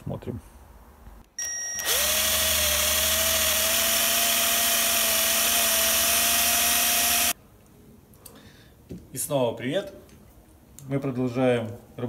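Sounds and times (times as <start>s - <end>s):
electric drill whining: 1.4s - 7.4s.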